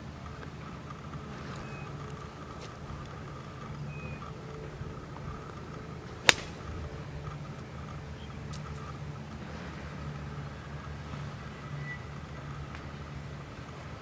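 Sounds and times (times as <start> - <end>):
steady low hum: 0.0 - 14.0
golf club striking ball: 1.1 - 9.4.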